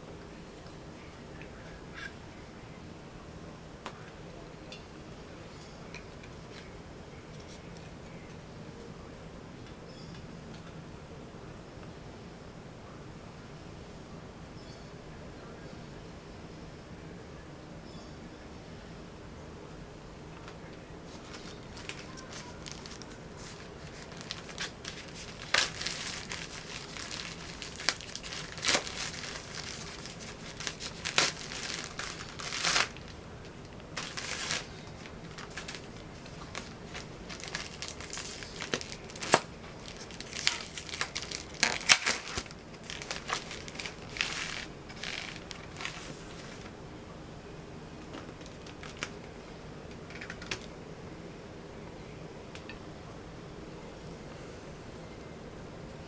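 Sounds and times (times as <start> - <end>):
plastic packaging crinkling: 21.1 - 46.7, 48.3 - 49.2.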